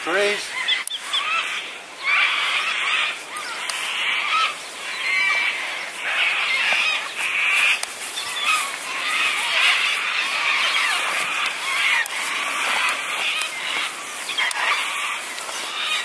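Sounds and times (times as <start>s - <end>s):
flock of birds chattering: 0.0s - 16.0s.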